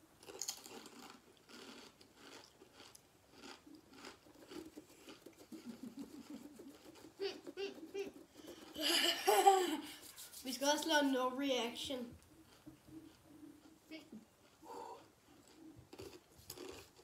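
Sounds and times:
chips crunching while chewed: 0.2s - 5.5s, 14.4s - 17.0s.

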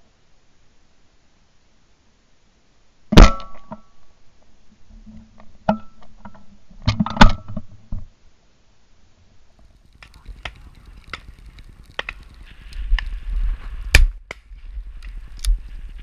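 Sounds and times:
sharp knocks and cracks: 9.9s - 13.1s.

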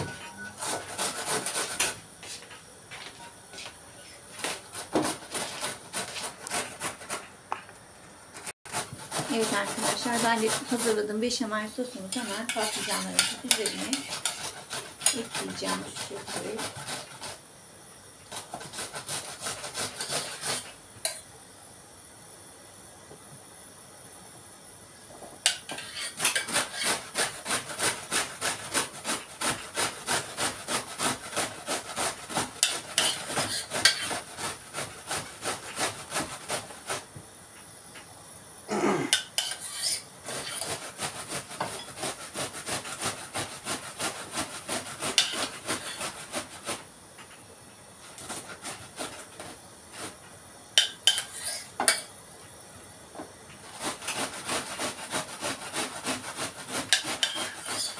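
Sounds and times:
cabbage rasping on grater: 0.6s - 2.0s, 4.4s - 7.3s, 8.7s - 17.4s, 18.3s - 20.8s, 25.6s - 37.1s, 39.4s - 46.8s, 48.0s - 50.2s, 53.6s - 57.9s.

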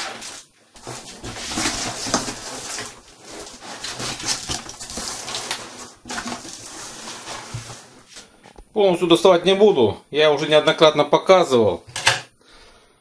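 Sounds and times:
packaging rustling and crinkling: 0.0s - 8.5s.

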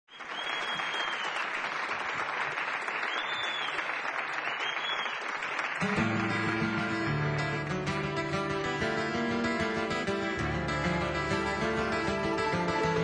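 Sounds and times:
whistles: 0.1s - 1.7s, 2.9s - 5.4s
audience applauding: 0.1s - 8.6s, 10.4s - 13.0s
acoustic guitar playing: 5.8s - 13.0s.

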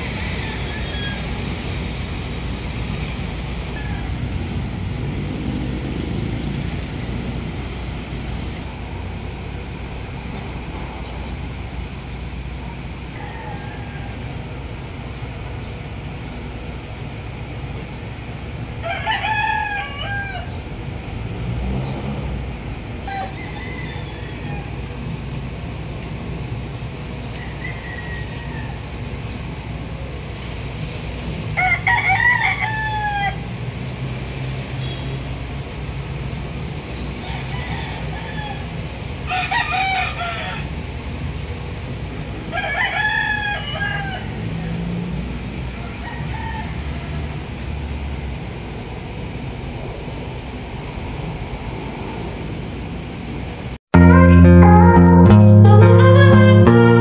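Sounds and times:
rooster crowing: 0.0s - 1.6s, 3.6s - 4.6s, 13.0s - 14.6s, 18.8s - 20.6s, 23.0s - 25.0s, 27.3s - 29.1s, 31.5s - 33.5s, 37.2s - 40.8s, 42.4s - 44.8s, 45.8s - 47.5s.

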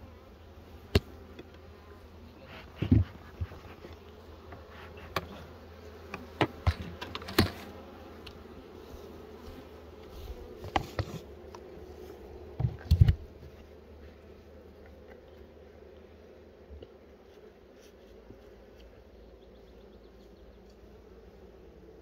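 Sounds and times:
honeybees buzzing: 0.0s - 22.0s
knocks and clicks of hive frames: 0.9s - 1.7s, 2.6s - 8.4s, 10.5s - 11.7s, 12.5s - 13.6s.

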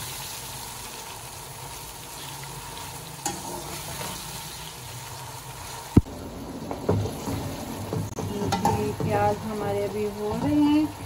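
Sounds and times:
onions sizzling in hot oil: 0.0s - 11.0s
metal spatula stirring in pot: 2.7s - 4.6s, 6.9s - 10.9s.

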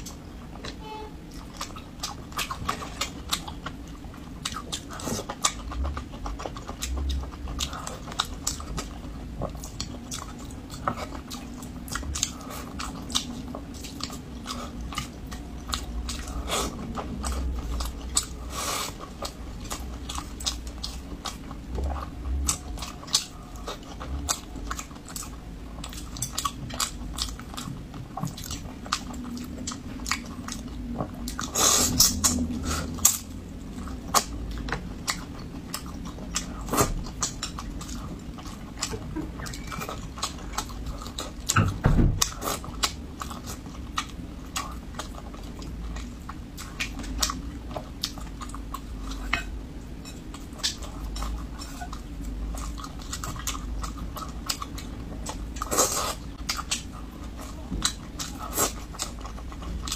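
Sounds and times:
chewing with mouth clicks: 0.0s - 59.9s.

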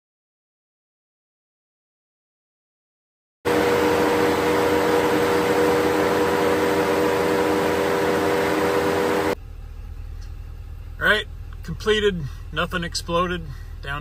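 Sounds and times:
diesel engine at raised idle: 3.5s - 14.0s.

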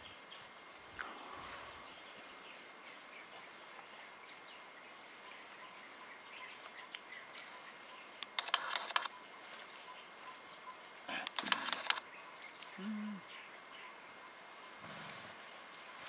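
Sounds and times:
faint bird chirps: 0.0s - 14.8s
leaves rustling: 8.4s - 12.9s, 14.4s - 16.0s.

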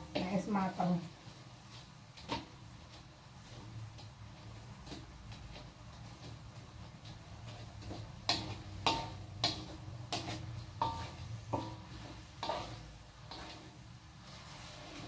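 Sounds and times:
metal spatula scraping a wok: 4.4s - 15.0s.

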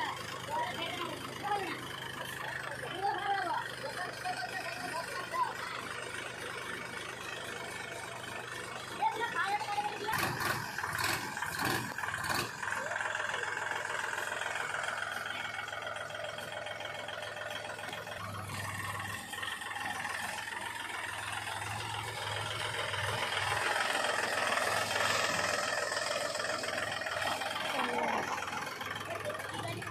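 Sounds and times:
tractor diesel engine running: 0.0s - 29.9s.

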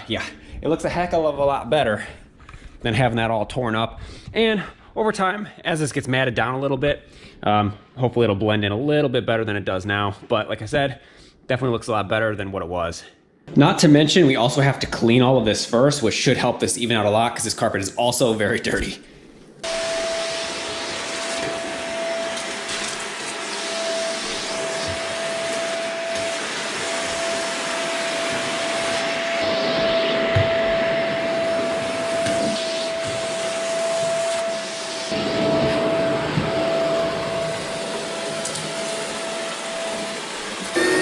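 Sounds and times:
vacuum cleaner motor whine: 19.6s - 41.0s.

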